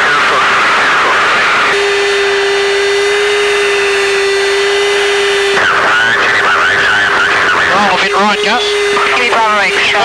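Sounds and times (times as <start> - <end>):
garbled radio voice: 0.0 - 1.9, 4.9 - 10.0
cockpit noise: 0.0 - 10.0
steady radio tone: 0.0 - 10.0.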